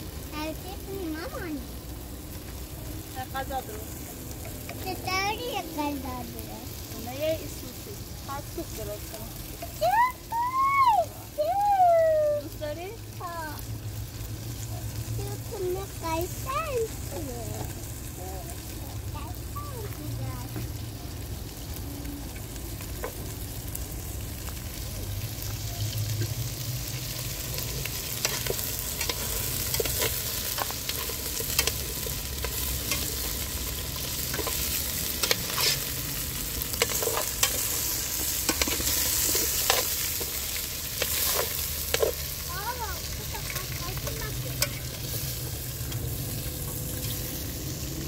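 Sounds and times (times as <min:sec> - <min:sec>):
meat sizzling in oil: 0:00.0 - 0:48.0.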